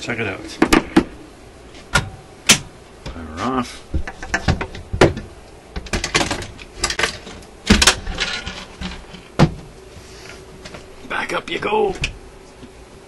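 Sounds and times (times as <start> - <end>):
sharp knocks on wooden cabinet: 3.9 - 6.0.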